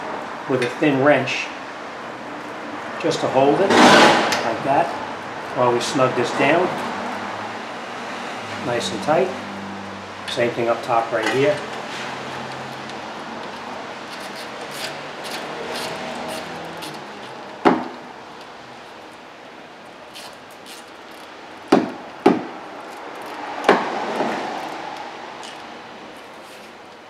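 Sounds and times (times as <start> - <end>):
sharp metal knocks: 21.7 - 22.6.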